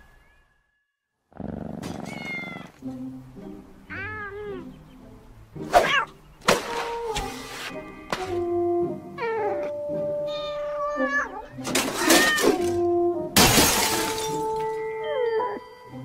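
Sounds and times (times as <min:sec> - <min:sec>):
cat meowing: 0:02.0 - 0:02.7, 0:03.9 - 0:04.7, 0:09.2 - 0:12.7.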